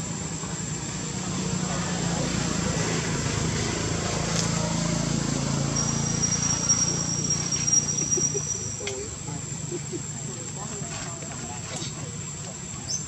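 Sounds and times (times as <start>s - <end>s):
thin high whine: 5.6s - 9.1s.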